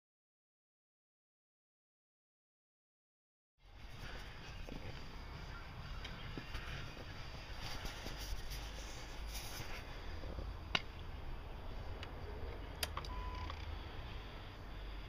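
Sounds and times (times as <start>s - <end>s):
sharp clicks: 12.0s - 13.8s
short steady beep: 13.1s - 13.6s.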